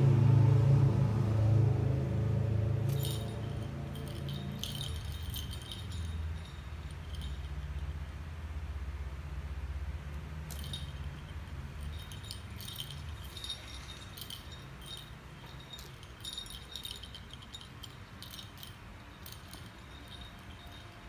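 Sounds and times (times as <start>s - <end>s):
low hum: 0.0s - 21.0s
small bell jingling: 2.9s - 8.0s, 10.4s - 21.0s.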